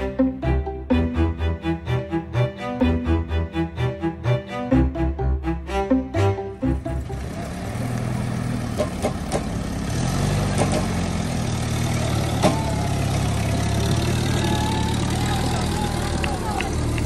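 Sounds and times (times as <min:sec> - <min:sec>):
jeep engine running under load: 0:06.1 - 0:17.0.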